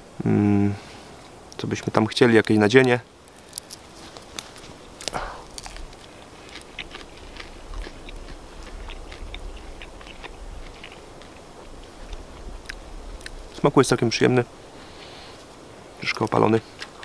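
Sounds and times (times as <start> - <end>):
person chewing crunchy bread: 3.2 - 13.6, 16.1 - 17.0.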